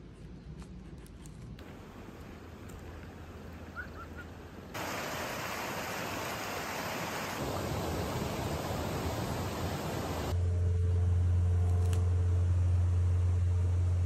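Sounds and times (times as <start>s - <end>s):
rocky stream rushing: 1.6s - 10.3s.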